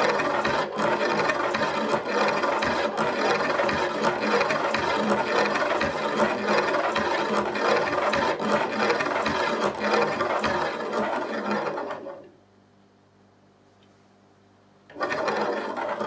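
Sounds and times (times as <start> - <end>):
magnet motor rattling and scraping: 0.0 - 12.2.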